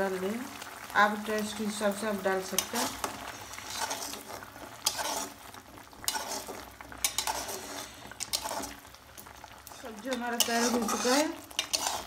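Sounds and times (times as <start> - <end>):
metal spatula scraping a pan: 2.5 - 5.4, 6.0 - 8.9, 9.7 - 12.0.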